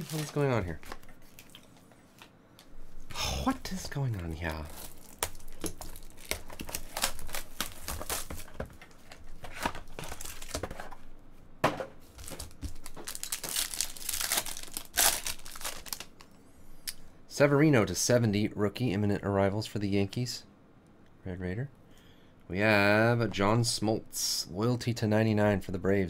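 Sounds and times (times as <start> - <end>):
cellophane wrap crinkling: 0.0 - 2.3, 3.7 - 11.0, 12.1 - 16.2
foil pack crinkling and tearing: 0.0 - 2.3, 4.6 - 8.6, 9.4 - 10.8, 12.1 - 16.2.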